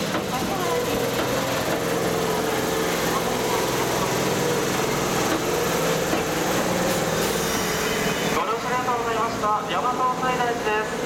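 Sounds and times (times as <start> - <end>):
electric train motor hum: 0.0 - 9.3.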